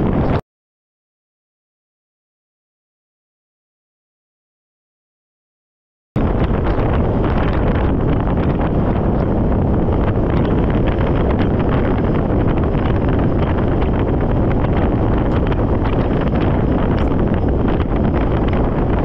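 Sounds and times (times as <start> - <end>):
wind buffeting microphone: 0.0 - 0.4, 6.2 - 19.0.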